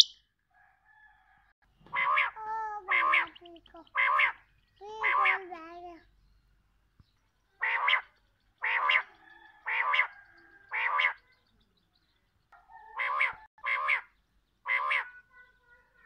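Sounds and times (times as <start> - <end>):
quail calling: 1.8 - 5.5, 7.6 - 11.4, 12.6 - 15.8.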